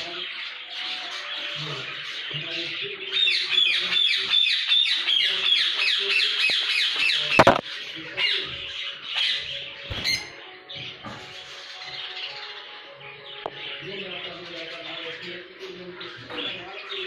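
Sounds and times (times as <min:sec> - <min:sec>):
lovebirds chirping: 0:00.0 - 0:17.0
sharp knock: 0:07.4 - 0:07.6.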